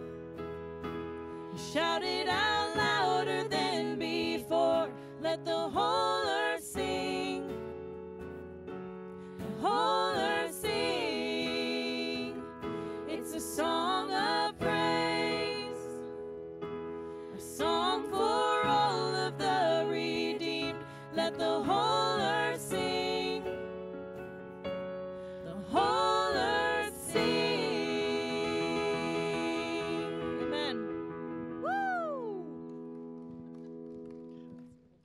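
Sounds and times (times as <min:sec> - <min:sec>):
stage piano chords: 0:00.0 - 0:35.0
woman singing into microphone: 0:01.6 - 0:07.7, 0:09.4 - 0:16.0, 0:17.4 - 0:23.6, 0:25.5 - 0:30.9.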